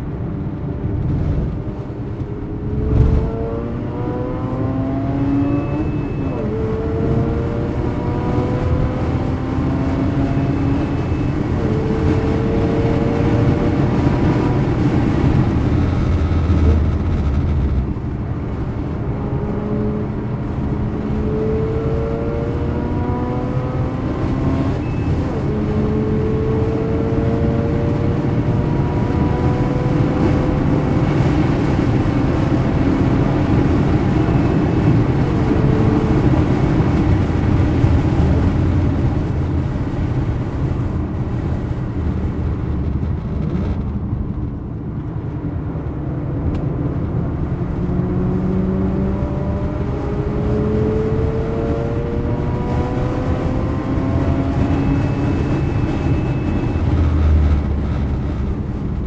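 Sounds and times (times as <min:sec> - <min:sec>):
tyre and road noise: 0:00.0 - 0:59.0
rotary engine revving: 0:02.6 - 0:18.0.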